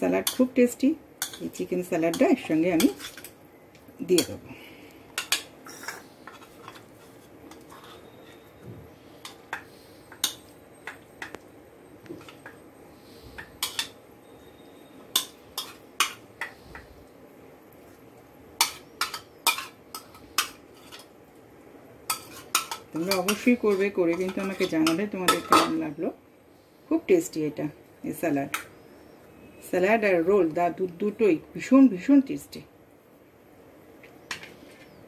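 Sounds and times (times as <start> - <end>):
spoon clinking and scraping: 5.2 - 8.5, 13.6 - 14.0, 15.1 - 16.5, 22.1 - 25.7.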